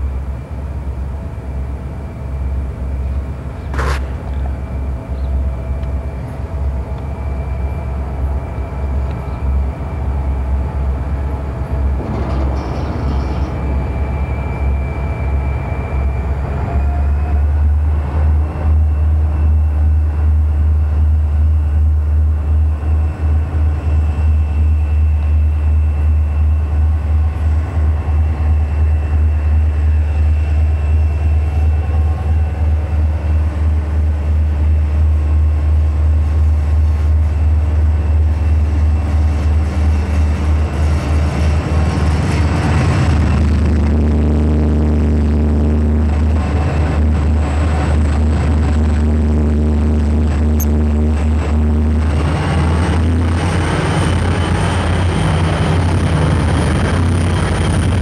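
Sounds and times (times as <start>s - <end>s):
diesel locomotive engine drone: 0.0s - 58.0s
faint high whines: 4.3s - 11.9s, 12.5s - 36.2s.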